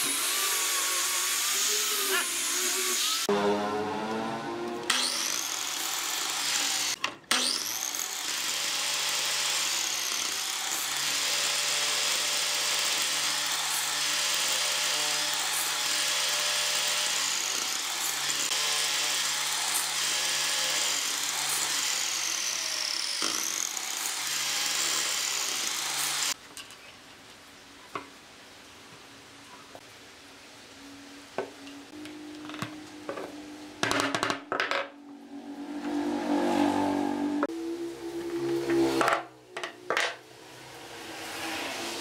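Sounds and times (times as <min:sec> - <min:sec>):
electric mitre saw cutting wood: 0:00.0 - 0:26.4.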